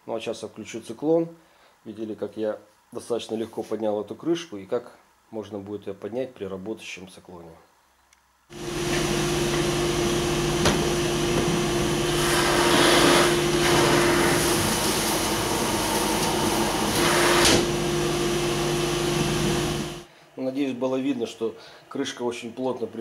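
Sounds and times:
dust extractor air rushing: 8.5s - 20.1s
motor hum: 8.5s - 20.1s.

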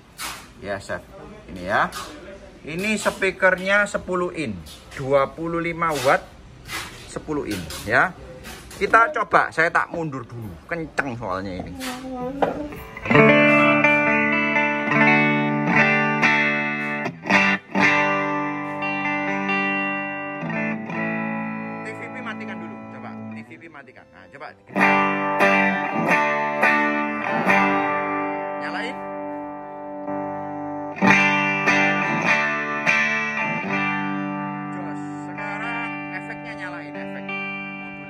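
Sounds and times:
electric guitar chords ringing: 12.4s - 38.0s.

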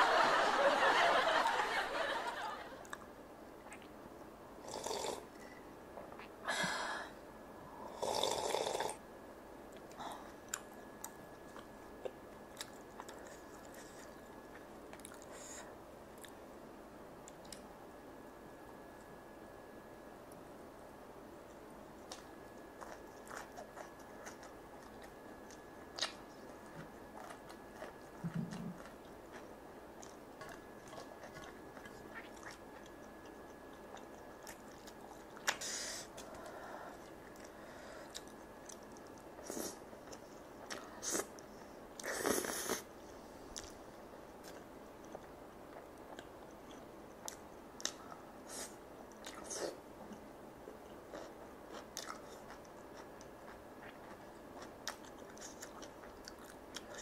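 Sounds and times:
chewing and mouth smacking: 3.6s - 4.0s, 9.7s - 15.3s, 22.0s - 35.6s, 37.0s - 42.1s, 44.4s - 48.2s, 50.9s - 57.0s.

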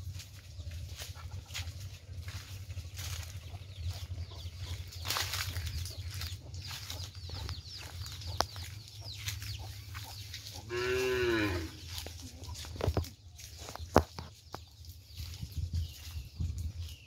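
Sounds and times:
small birds chirping: 0.0s - 17.0s
cow mooing: 10.7s - 11.9s.

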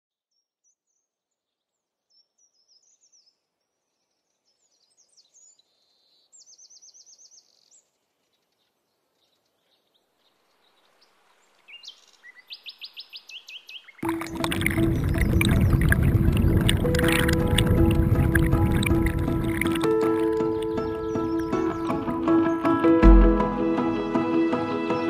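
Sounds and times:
songbirds singing: 0.7s - 23.2s
flowing water rushing: 14.0s - 25.0s
bird trill: 19.5s - 23.2s.

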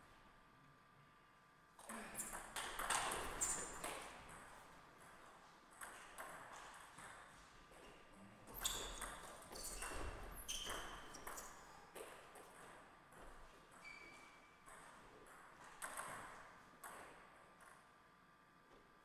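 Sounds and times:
short high squeaks: 8.6s - 11.6s.

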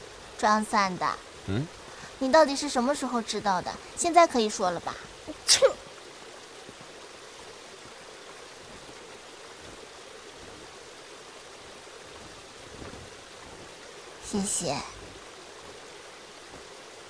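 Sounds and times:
waterfall water rushing: 0.0s - 17.0s
person sneezing: 5.3s - 5.8s.

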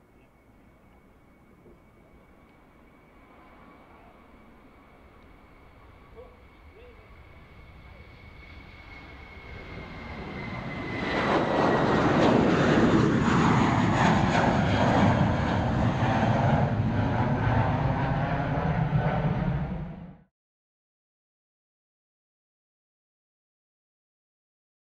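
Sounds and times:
faint high whine: 0.0s - 12.0s
jet engines at takeoff: 0.0s - 20.3s.

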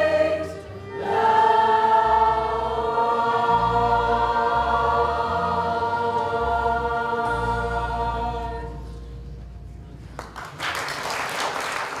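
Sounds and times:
choir holding a chord: 0.0s - 9.1s
audience applause: 10.2s - 12.0s.

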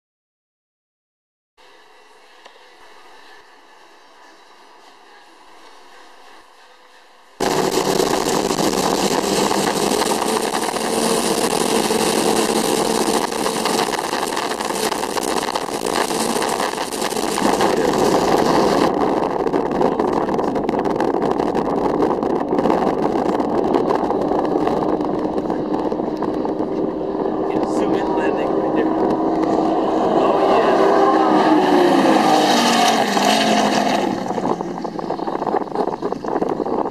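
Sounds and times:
speedboat engine at speed: 7.4s - 36.9s
wind rushing: 7.4s - 36.9s
water rushing: 24.2s - 34.4s.

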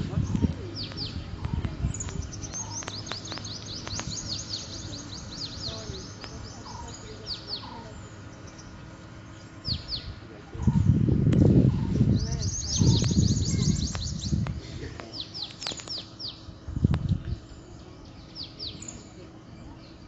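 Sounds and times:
softer lower bird calls: 0.0s - 11.0s, 11.6s - 14.4s
high downward-sweeping bird chirps: 0.0s - 14.4s, 15.2s - 16.6s, 17.2s - 20.0s
low background rumble: 0.0s - 20.0s.

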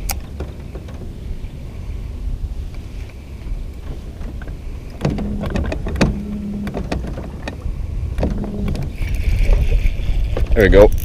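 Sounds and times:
wind on microphone: 0.0s - 11.0s
fishing reel whirring and clicking: 8.6s - 11.0s.

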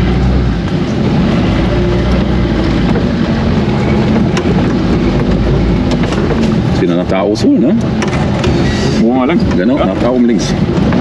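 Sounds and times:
car engine running: 0.0s - 11.0s.

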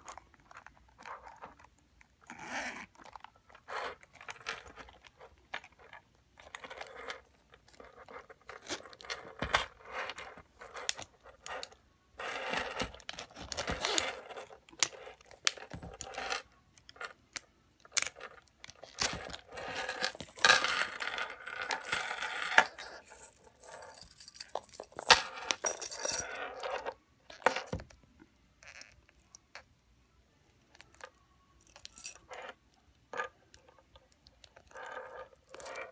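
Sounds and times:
chain links jangling: 18.1s - 26.9s.

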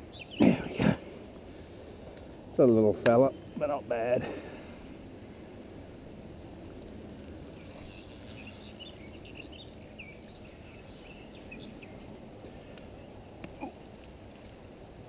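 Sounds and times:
small birds chirping: 0.0s - 1.0s, 2.1s - 5.3s, 7.2s - 13.8s.

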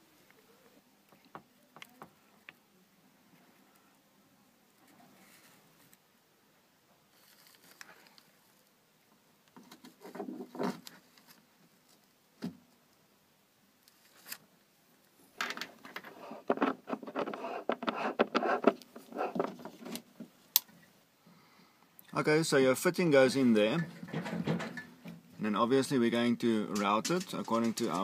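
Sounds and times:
plastic fitting scraping: 15.6s - 20.1s
rubbing and scraping: 15.6s - 20.1s, 26.8s - 28.0s.

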